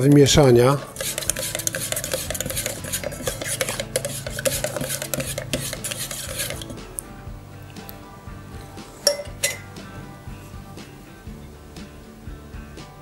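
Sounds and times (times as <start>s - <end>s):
stick scraping inside metal tin: 0.8s - 6.9s.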